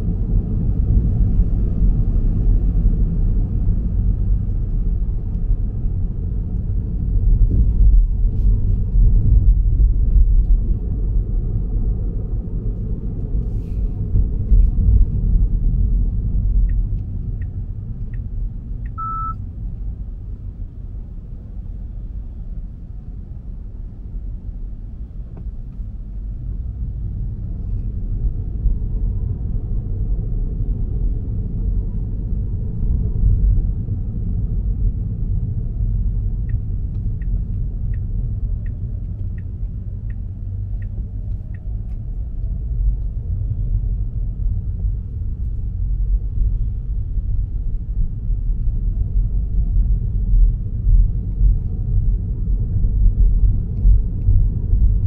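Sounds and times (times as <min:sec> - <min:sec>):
car engine and tyre rumble: 0:00.0 - 0:55.0
light ticks: 0:16.6 - 0:19.0, 0:36.4 - 0:43.1
short high beep: 0:18.9 - 0:19.4.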